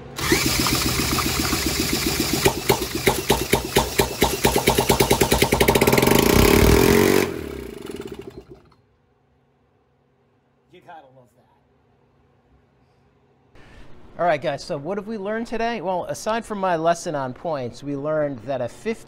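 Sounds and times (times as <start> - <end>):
cordless drill cranking: 0.0 - 8.8
small engine firing: 0.0 - 8.8.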